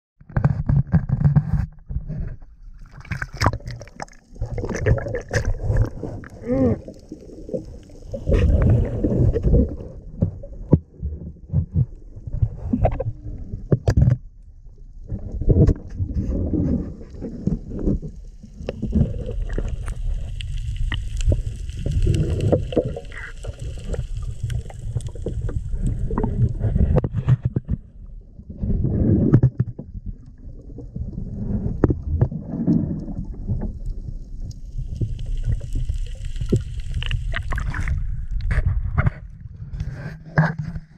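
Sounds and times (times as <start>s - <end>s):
muffled underwater rumble: 0.2s - 40.9s
knocks and scrapes on camera housing: 39.9s - 40.9s.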